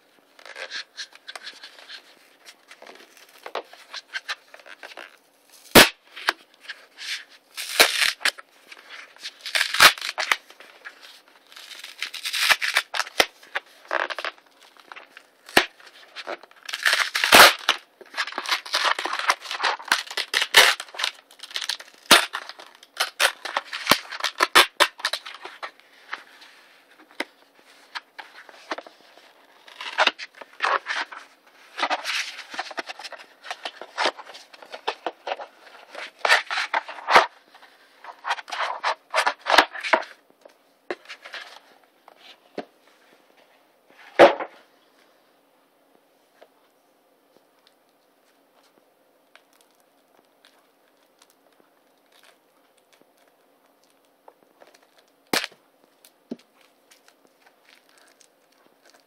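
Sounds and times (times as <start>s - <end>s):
cardboard mailer tearing: 7.0s - 8.4s, 9.2s - 10.4s, 11.5s - 14.3s, 15.4s - 25.7s.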